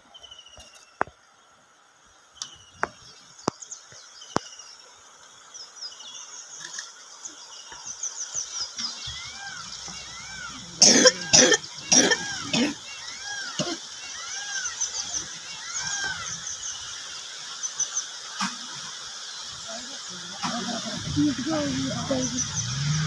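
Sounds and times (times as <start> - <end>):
birds singing: 0.0 - 23.0
harsh cough-like bursts: 10.8 - 12.9, 13.6 - 13.9.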